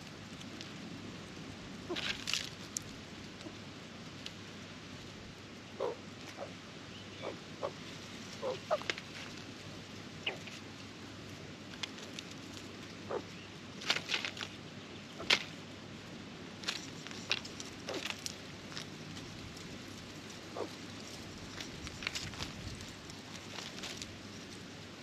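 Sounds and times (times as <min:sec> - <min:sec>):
birds rustling in straw: 0:00.0 - 0:25.0
faint steady hiss: 0:00.0 - 0:25.0.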